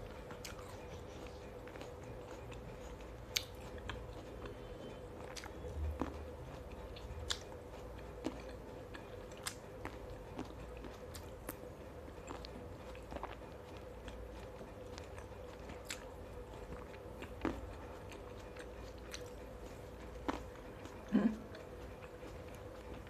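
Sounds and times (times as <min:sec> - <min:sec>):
faint steady hum: 0:00.0 - 0:23.0
person chewing fruit: 0:00.0 - 0:23.0.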